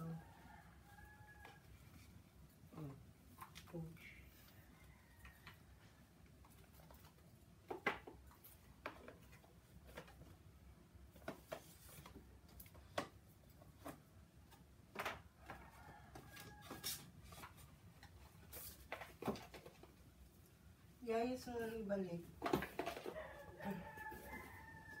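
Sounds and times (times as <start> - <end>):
cardboard boxes handled and opened: 6.4 - 20.2, 22.2 - 25.0.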